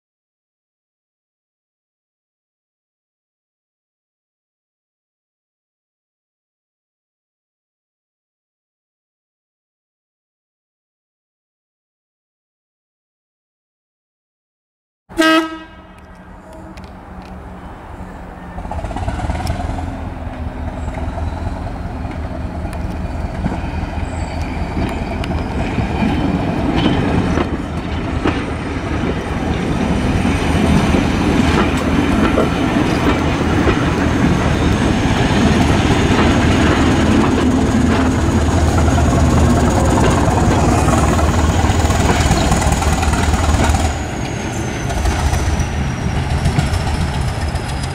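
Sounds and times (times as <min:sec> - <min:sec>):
train horn blast: 0:15.1 - 0:20.1
wheel clatter over rail joints: 0:22.0 - 0:47.9.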